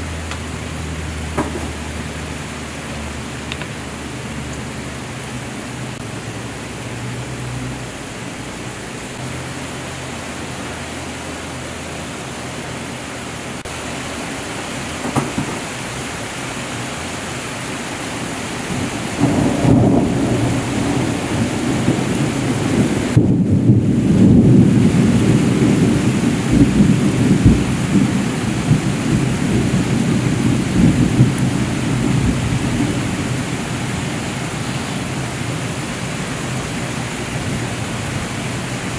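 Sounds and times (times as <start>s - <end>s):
heavy rain falling: 0.0s - 38.9s
distant thunder rumbling: 18.6s - 38.9s.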